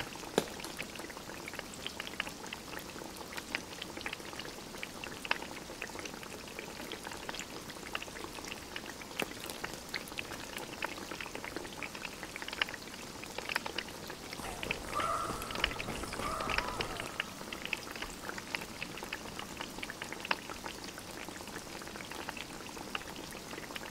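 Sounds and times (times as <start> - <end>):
wood fire crackling: 13.4 - 20.7.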